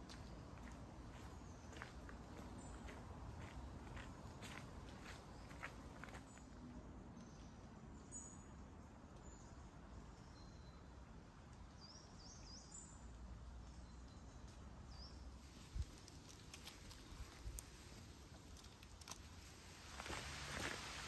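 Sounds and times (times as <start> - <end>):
faint background noise: 0.0 - 21.0.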